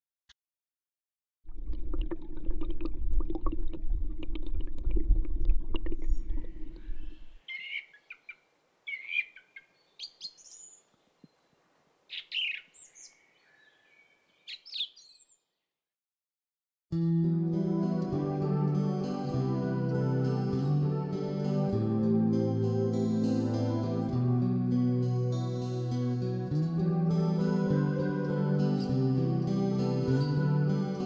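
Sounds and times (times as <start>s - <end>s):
water rumbling underwater: 1.5s - 7.4s
birds chirping: 6.0s - 15.4s.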